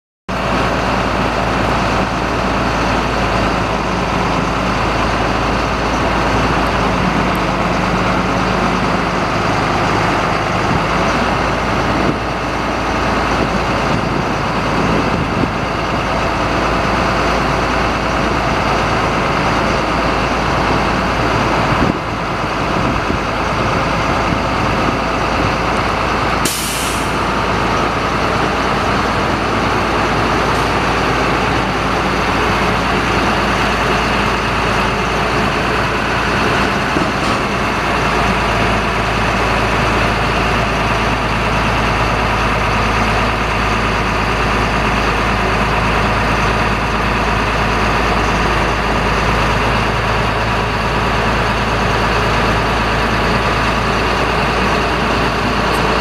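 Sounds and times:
diesel engine idling: 0.3 - 56.0
air brake hiss: 26.4 - 27.2.

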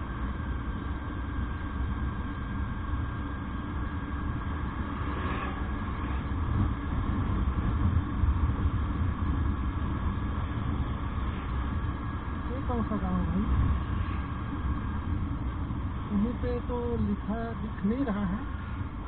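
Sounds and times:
wind rumble: 0.0 - 19.0
motorcycle engine: 4.3 - 8.4.

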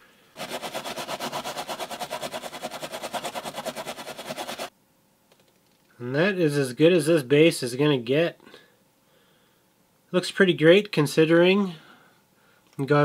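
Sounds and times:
wire brush scrubbing metal: 0.4 - 4.7.

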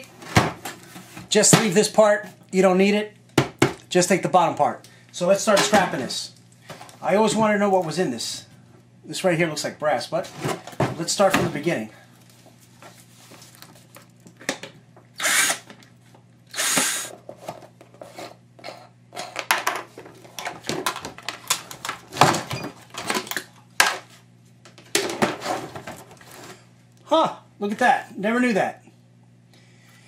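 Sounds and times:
cordless drill running: 15.2 - 15.7, 16.5 - 17.1
plastic parts clicking and knocking: 19.2 - 24.0.

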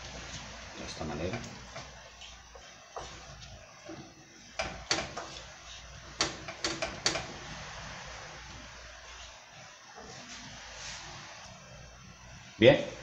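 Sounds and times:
faint steady hiss: 0.0 - 13.0
wooden spoon knocking on a pan: 1.2 - 5.4, 6.1 - 7.4.

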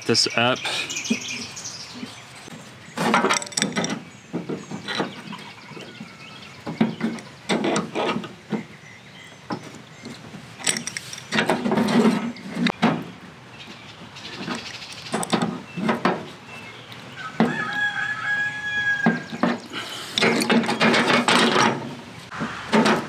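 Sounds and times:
metal fittings and wrenches clinking: 3.0 - 5.5, 10.0 - 12.8, 14.4 - 16.1, 19.3 - 21.9.

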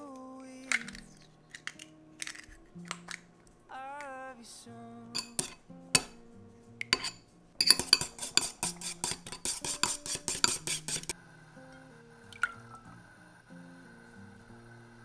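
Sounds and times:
soft background music: 0.0 - 15.0
chopsticks clinking against bowl: 5.2 - 6.2, 6.8 - 11.1.

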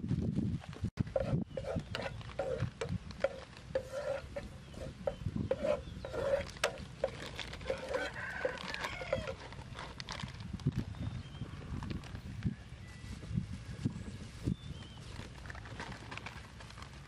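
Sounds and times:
spatula scraping a frying pan: 1.0 - 9.5.

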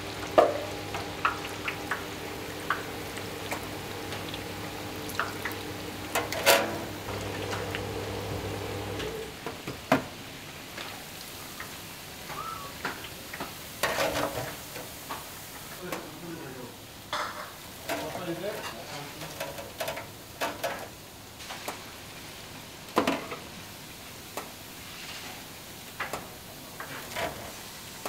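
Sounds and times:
food sizzling in hot oil: 0.0 - 9.4, 10.1 - 28.0
steady machine hum: 0.0 - 9.4.

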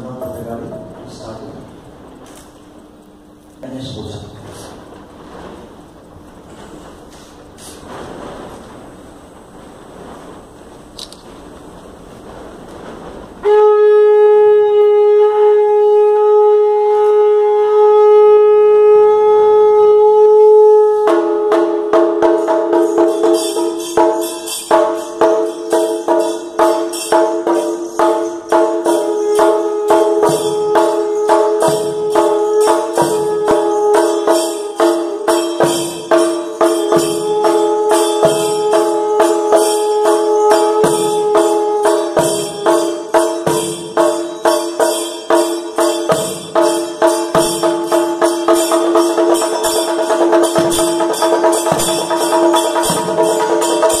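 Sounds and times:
conch shell blown: 13.4 - 54.0
small cymbals clashing: 20.8 - 54.0
barrel drums beaten with sticks: 21.1 - 54.0.

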